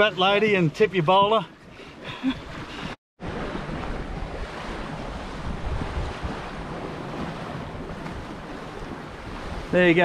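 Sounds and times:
water rushing along a hull: 0.0s - 10.0s
wind noise on microphone: 2.3s - 9.8s.

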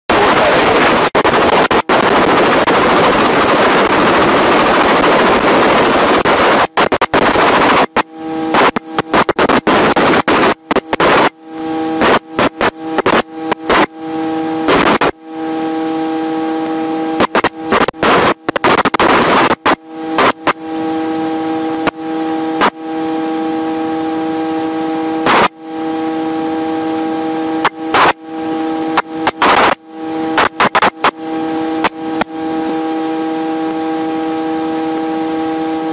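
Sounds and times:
helicopter cabin rushing noise: 0.1s - 13.9s
helicopter multi-tone whine: 0.1s - 35.9s.

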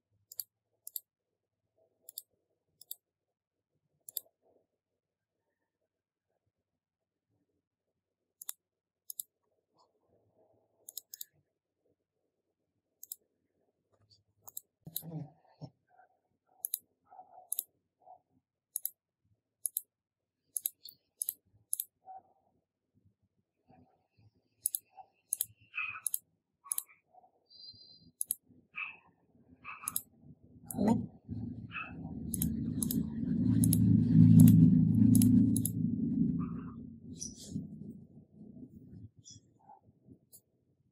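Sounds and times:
sharp clicks: 24.6s - 26.9s, 29.8s - 30.1s, 31.9s - 35.8s.

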